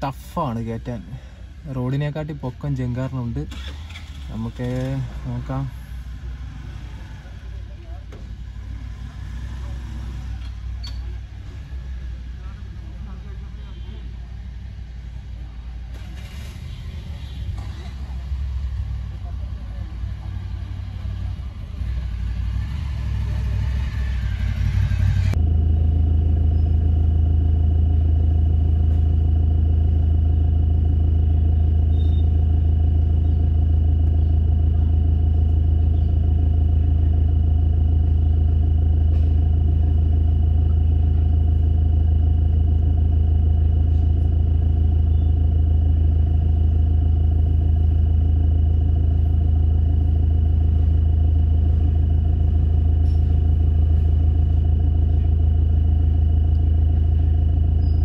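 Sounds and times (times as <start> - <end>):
mixed outdoor noise: 0.0 - 29.1
car engine idling: 0.0 - 58.0.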